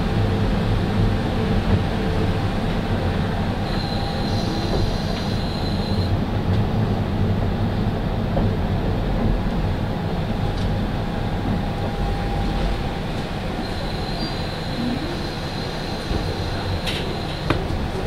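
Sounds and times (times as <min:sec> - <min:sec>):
diesel railcar rumbling: 0:00.0 - 0:18.0
brakes squealing: 0:03.6 - 0:06.1, 0:13.5 - 0:17.7.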